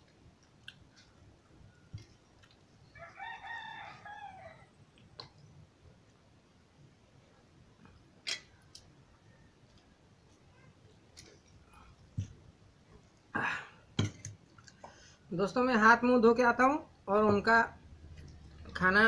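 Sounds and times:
rooster crowing: 3.0s - 4.7s.

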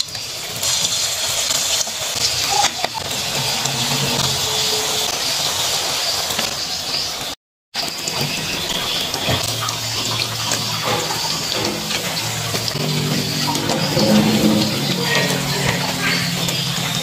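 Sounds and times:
fritters sizzling in hot oil: 0.0s - 13.4s.

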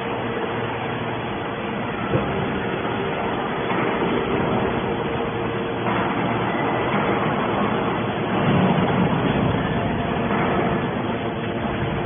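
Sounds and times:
hydraulic baler humming: 0.0s - 12.0s.

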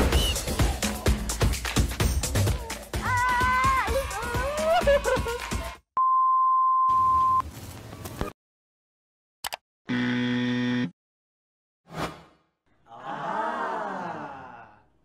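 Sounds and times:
flat buzzer tone: 9.9s - 10.9s.

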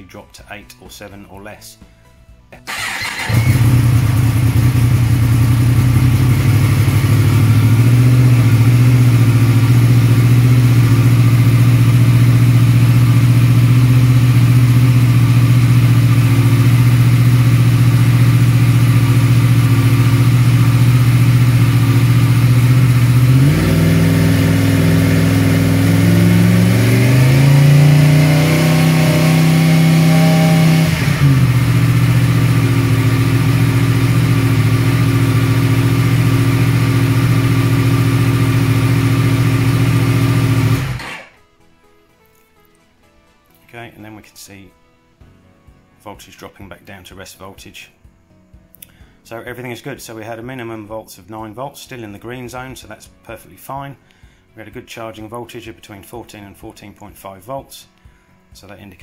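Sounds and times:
motorcycle engine starting and idling: 2.7s - 41.4s.

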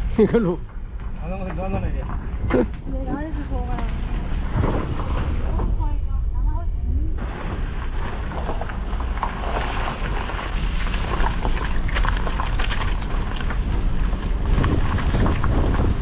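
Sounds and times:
car tyres rolling over gravel: 0.0s - 6.0s, 7.2s - 16.0s
stones clicking under tyres: 7.4s - 16.0s.

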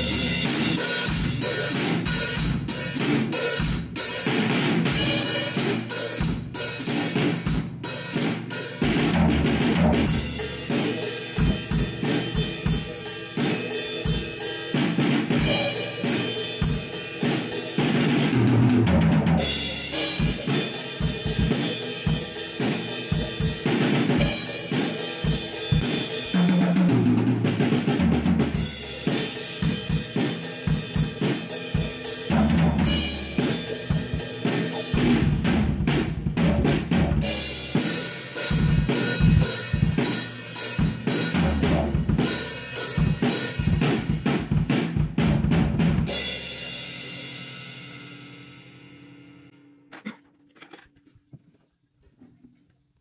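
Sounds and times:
cymbals ringing: 0.0s - 2.9s, 5.0s - 7.1s, 10.2s - 18.0s, 19.4s - 26.3s, 28.7s - 35.0s
acoustic drum kit groove: 0.0s - 48.5s, 49.9s - 51.5s.

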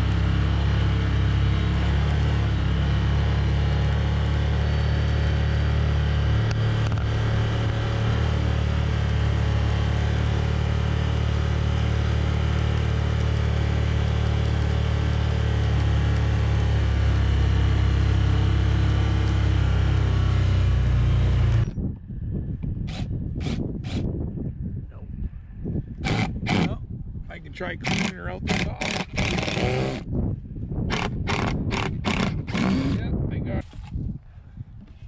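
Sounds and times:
vehicle engine running: 0.0s - 21.8s, 26.0s - 26.8s, 27.6s - 30.1s.

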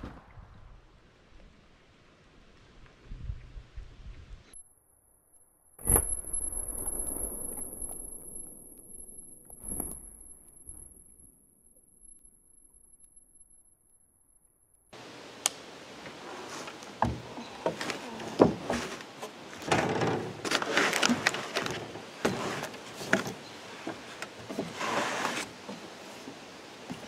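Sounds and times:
person shifting and rustling: 15.9s - 27.0s
knocks and bumps on wood: 16.9s - 19.0s.

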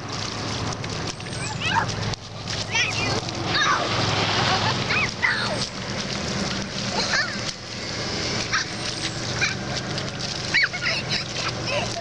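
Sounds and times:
bare feet splashing in puddle: 0.0s - 12.0s
children calling: 1.2s - 5.8s, 8.4s - 12.0s.

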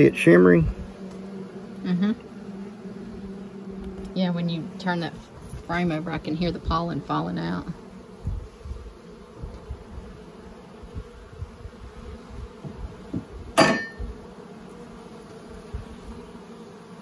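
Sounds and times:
honeybees humming: 0.0s - 17.0s
sharp ringing clack: 13.6s - 14.0s.

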